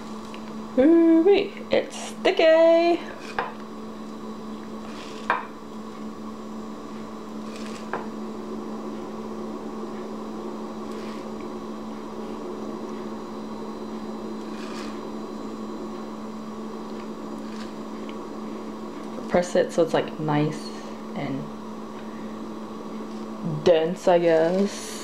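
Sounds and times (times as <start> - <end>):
electrical hum: 0.0 - 25.0
soft rubbing and crackling: 4.6 - 5.3, 7.3 - 7.9, 10.8 - 11.5, 14.3 - 15.2, 24.0 - 25.0.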